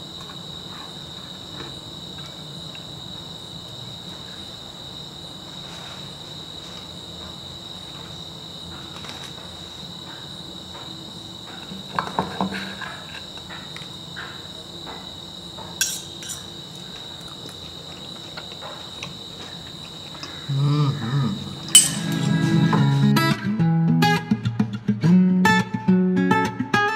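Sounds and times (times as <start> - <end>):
crickets chirping: 0.0 - 24.5
strummed guitar music: 21.7 - 26.9.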